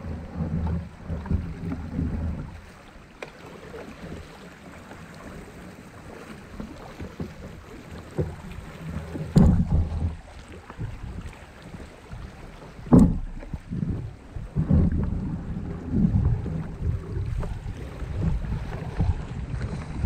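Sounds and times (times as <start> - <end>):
paddle splashing in water: 0.0 - 20.0
low rumbling: 8.1 - 11.4, 12.6 - 20.0.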